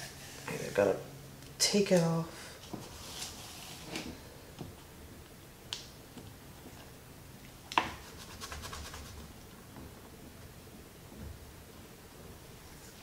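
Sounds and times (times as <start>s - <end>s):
liner peeled off tape crackling: 2.7s - 4.2s.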